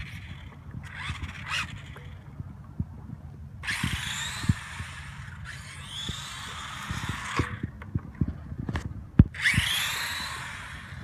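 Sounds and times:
rc car motor whining: 0:00.0 - 0:02.0, 0:03.6 - 0:07.7, 0:09.4 - 0:11.0.

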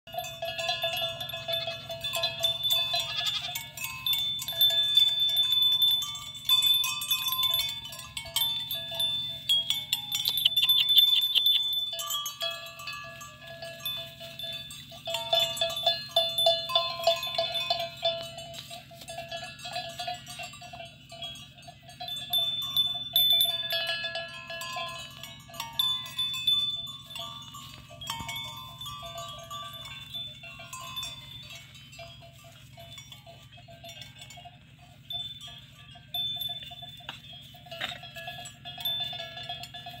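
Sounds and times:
goat bells clinking: 0:00.0 - 0:40.0
goats bleating: 0:02.7 - 0:03.8.

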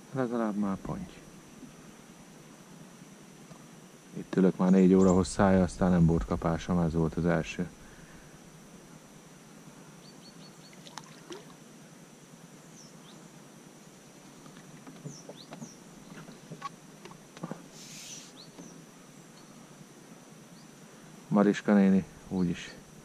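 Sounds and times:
quiet water sounds: 0:00.0 - 0:23.0
water splash: 0:10.8 - 0:11.6.

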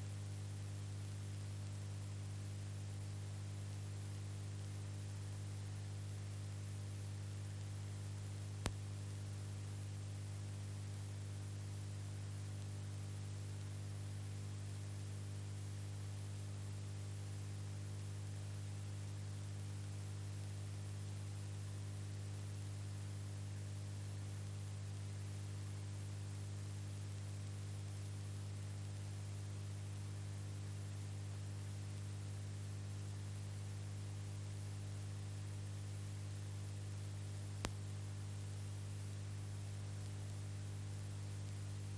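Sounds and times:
electrical hum with hiss: 0:00.0 - 0:41.9.

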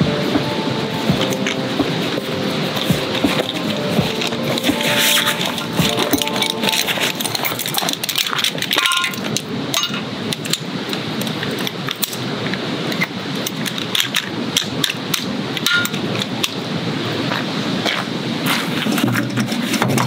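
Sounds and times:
steady background hiss: 0:00.0 - 0:20.0
metal chair frame clicks and rattles: 0:01.2 - 0:16.6.

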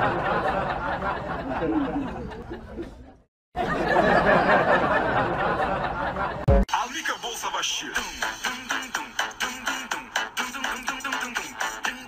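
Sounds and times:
people chattering and laughing: 0:00.0 - 0:06.5.

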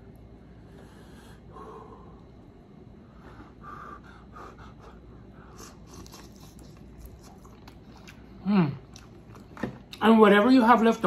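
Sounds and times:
man breathing through nose: 0:00.7 - 0:02.2, 0:03.0 - 0:05.9.

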